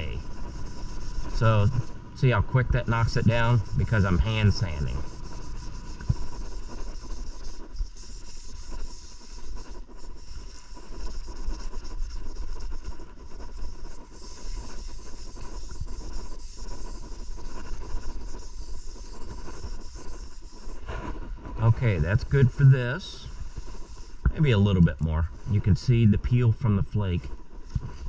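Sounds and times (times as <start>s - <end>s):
hand sanding with abrasive pad: 0.0s - 28.0s.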